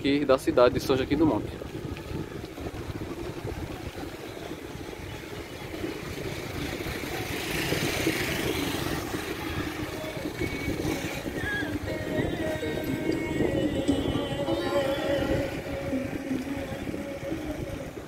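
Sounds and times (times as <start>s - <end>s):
wind rush on microphone: 0.0s - 18.0s.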